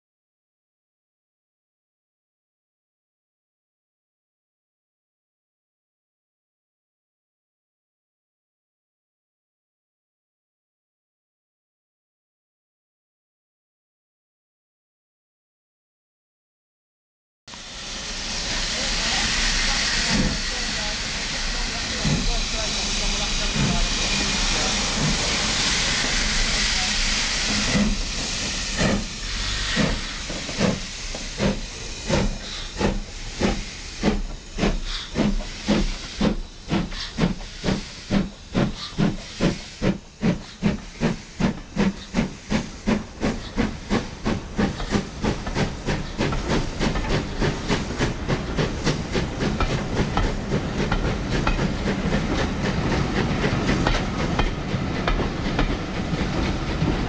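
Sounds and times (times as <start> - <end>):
steam hissing: 17.5 - 57.0
steam locomotive chuffing: 17.5 - 57.0.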